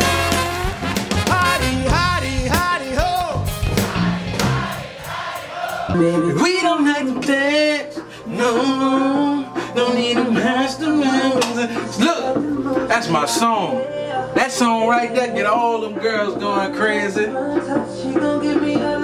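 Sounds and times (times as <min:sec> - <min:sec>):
bass and drums: 0:00.0 - 0:07.8
man singing: 0:01.1 - 0:03.6, 0:05.9 - 0:19.0.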